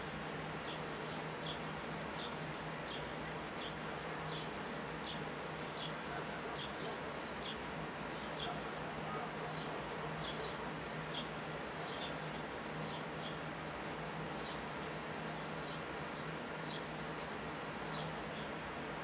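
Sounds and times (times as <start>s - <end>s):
sparrows chirping: 0.6s - 18.6s.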